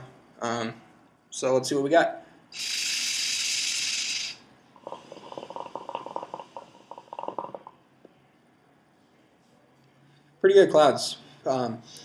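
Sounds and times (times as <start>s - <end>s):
hookah hose airy hiss: 2.5s - 7.7s
water bubbling in hookah: 2.6s - 7.7s.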